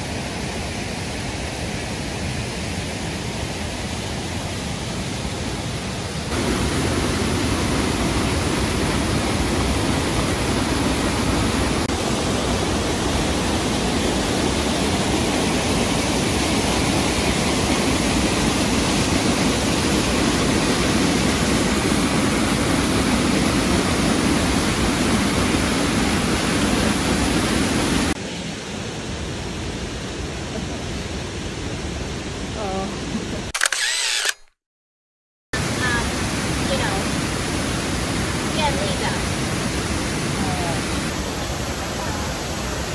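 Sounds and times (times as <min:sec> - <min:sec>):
waterfall rushing: 0:00.0 - 0:32.5, 0:35.6 - 0:42.9.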